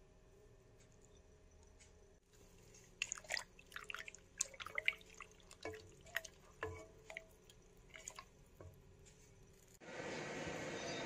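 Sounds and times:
wet squelches and light clicks: 0.8 - 9.7
spatula stirring thick liquid: 2.3 - 9.5.

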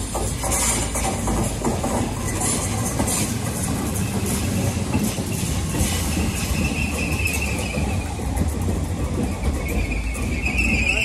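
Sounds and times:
train wheels rumbling on rails: 0.0 - 11.0
high wheel squeal: 4.0 - 8.6, 9.2 - 11.0.

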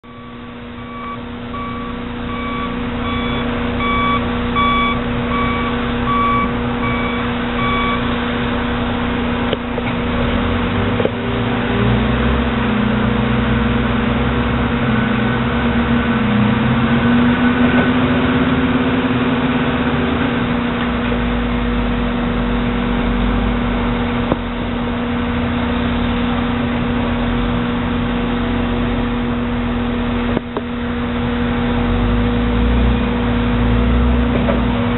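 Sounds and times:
warning alarm beeping: 0.0 - 8.1
diesel excavator engine running: 0.0 - 34.9.

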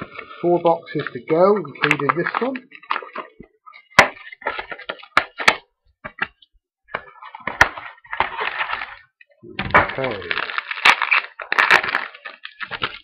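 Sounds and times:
card pack wrapper tearing: 0.9 - 5.6, 9.7 - 13.0.

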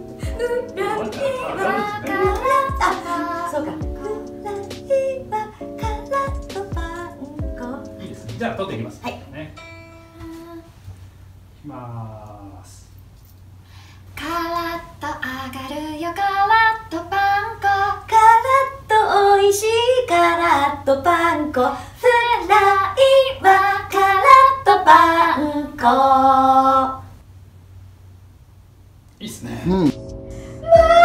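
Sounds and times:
women singing a jingle unaccompanied: 0.2 - 8.0, 14.2 - 27.0.

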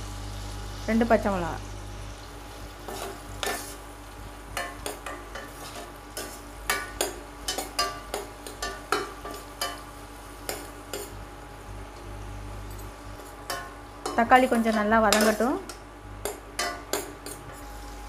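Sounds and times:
low sizzle of frying: 0.0 - 18.0
spatula clinking and scraping pan: 2.9 - 3.8, 4.6 - 11.2, 12.6 - 17.7.

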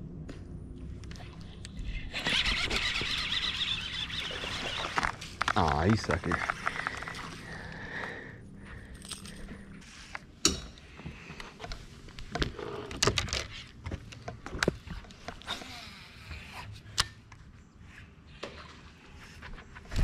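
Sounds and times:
fishing rods and reels knocking: 2.1 - 7.4.

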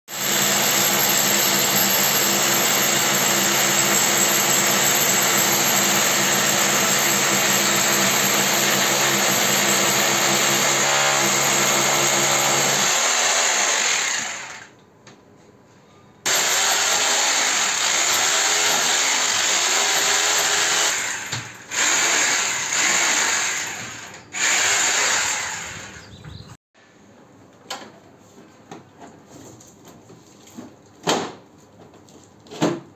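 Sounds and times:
electric drill boring into wall: 0.1 - 14.8, 16.3 - 26.0.

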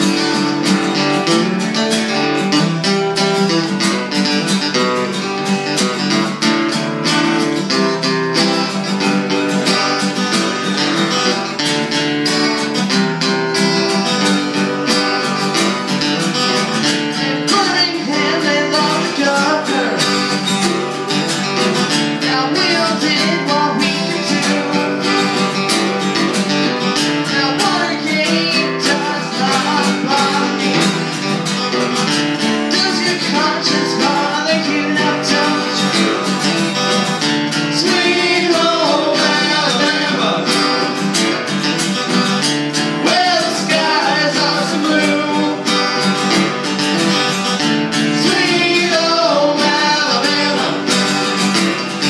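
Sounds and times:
acoustic guitars strumming: 0.0 - 52.0
person singing: 17.1 - 31.4, 32.4 - 36.8, 37.5 - 41.1, 42.9 - 46.1, 47.9 - 51.4.

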